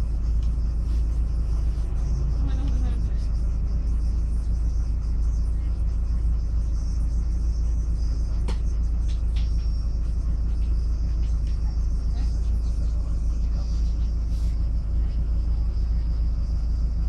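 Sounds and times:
bus engine rumble: 0.0s - 17.0s.

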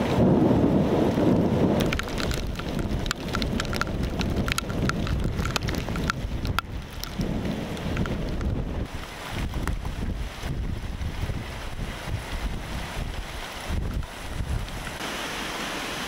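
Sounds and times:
low rush of wind: 0.0s - 16.0s
steady rain hiss: 0.0s - 16.0s
raindrops ticking on window glass: 1.8s - 8.6s.

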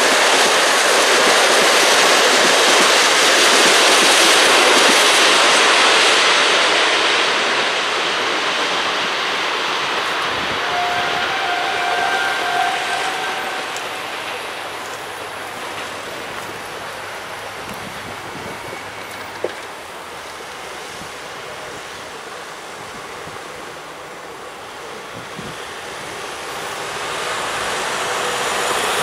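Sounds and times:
wind: 0.0s - 29.0s
road traffic: 9.1s - 29.0s.

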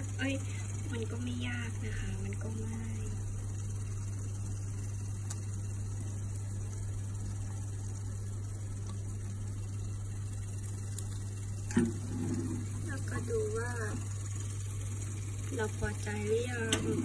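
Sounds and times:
low hum with faint hiss: 0.0s - 17.0s.

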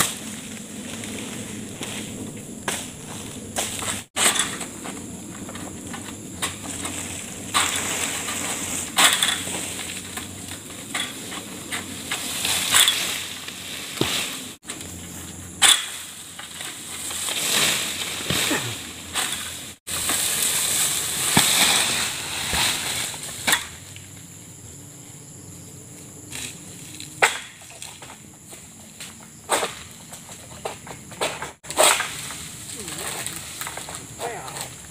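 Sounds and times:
sickle rasping strokes: 0.0s - 23.7s
fronds rustling: 0.0s - 24.7s, 31.3s - 34.9s.

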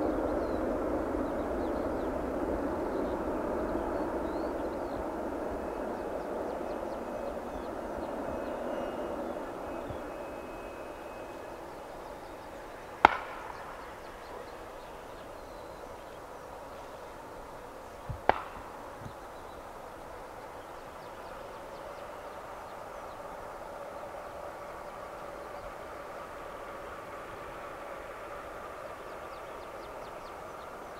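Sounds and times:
jet engines droning: 0.0s - 30.9s
sharp knocks: 18.1s - 18.7s.

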